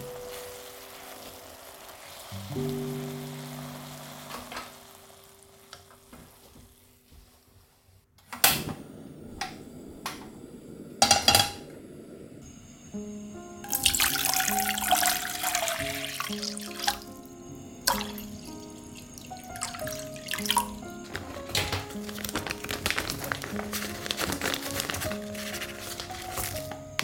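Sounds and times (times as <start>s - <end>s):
water pouring: 0.0s - 6.8s, 13.6s - 27.0s
soft background music: 0.0s - 7.4s, 12.4s - 27.0s
kitchen utensils knocking: 11.0s - 11.7s.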